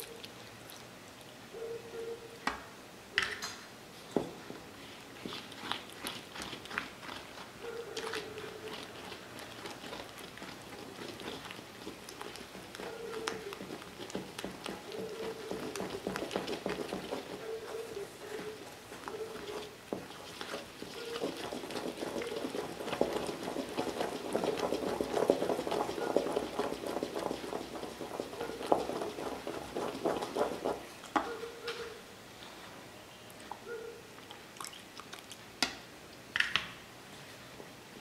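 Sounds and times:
spatula stirring thick batter: 0:04.5 - 0:31.6
spatula tapping: 0:07.9 - 0:31.5.

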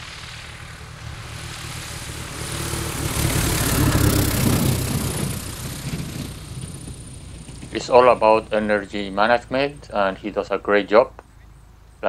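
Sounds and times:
propeller plane passing low: 0:00.0 - 0:12.0.

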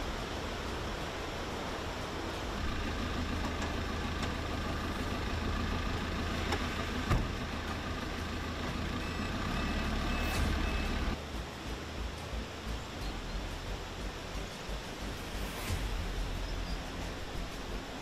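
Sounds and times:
diesel engine idling: 0:00.0 - 0:11.2
river rushing: 0:00.0 - 0:18.0
cab door slamming: 0:07.1 - 0:07.4.

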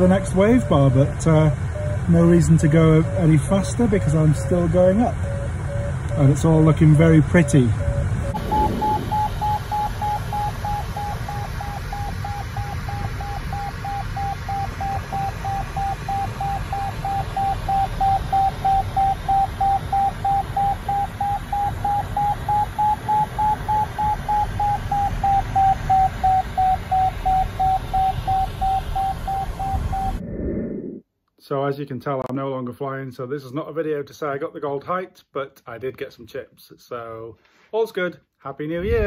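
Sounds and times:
cockpit air noise: 0:00.0 - 0:31.0
variometer short beeps: 0:01.5 - 0:30.2.

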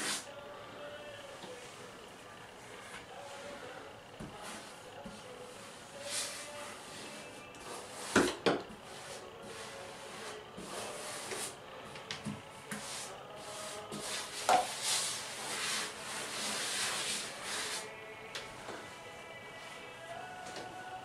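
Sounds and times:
grout float scraping tile: 0:04.4 - 0:11.5, 0:12.7 - 0:17.9.

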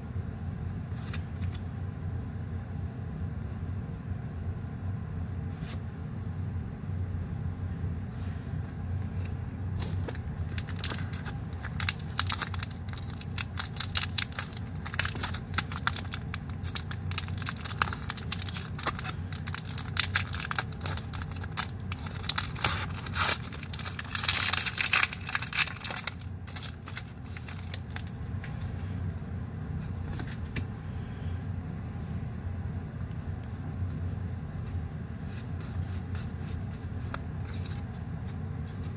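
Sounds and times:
steady low hum: 0:00.0 - 0:38.9
wrapper tearing: 0:09.8 - 0:28.2
foil wrapper crinkling: 0:09.8 - 0:28.3.

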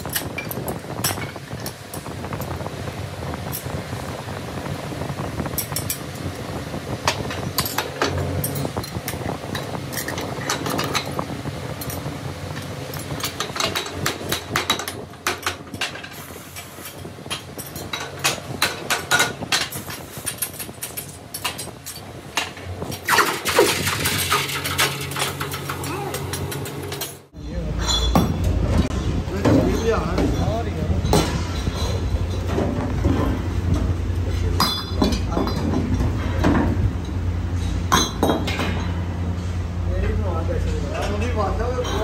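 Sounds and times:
steady machine hum: 0:00.0 - 0:42.0
steel tools clinking on metal: 0:27.8 - 0:28.5.

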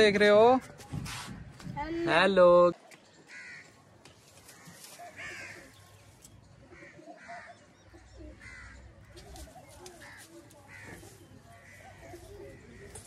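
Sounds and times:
crows cawing: 0:03.3 - 0:03.8, 0:04.4 - 0:05.8, 0:06.7 - 0:13.0.

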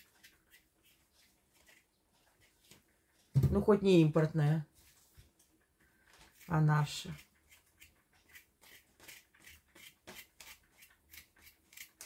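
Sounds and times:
knife scraping potato skin: 0:00.0 - 0:02.5, 0:06.2 - 0:12.0.

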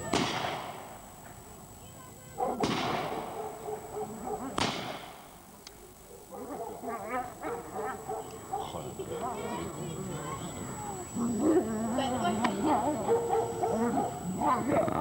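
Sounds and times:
loud sharp cracks: 0:00.0 - 0:01.0, 0:02.6 - 0:03.4, 0:04.6 - 0:05.4.

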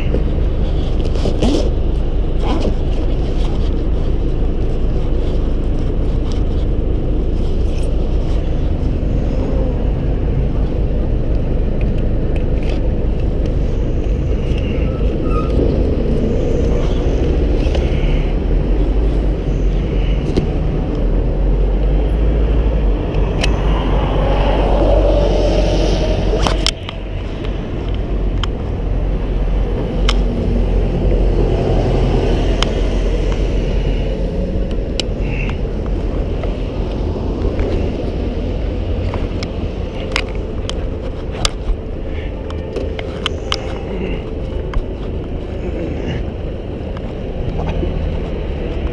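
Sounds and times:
city traffic rumble: 0:00.0 - 0:48.9.

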